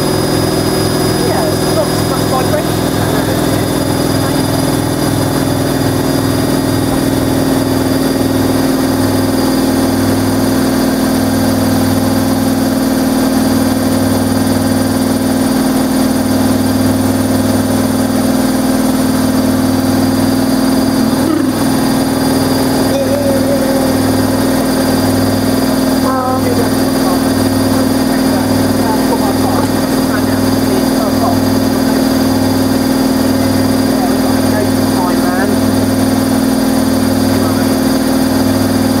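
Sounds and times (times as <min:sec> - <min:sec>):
low pulsing throb: 0:00.0 - 0:39.0
washing machine spinning: 0:00.0 - 0:39.0.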